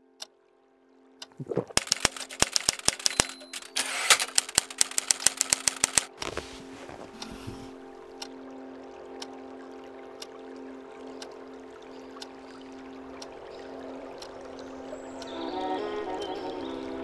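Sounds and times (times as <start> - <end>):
typewriter key strikes: 1.8 - 6.1
low steady drone: 6.2 - 17.0.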